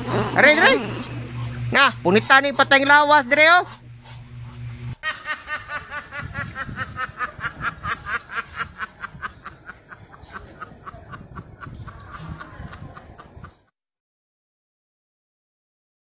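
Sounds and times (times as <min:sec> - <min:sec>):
rapid snickering laugh: 0:04.9 - 0:13.7.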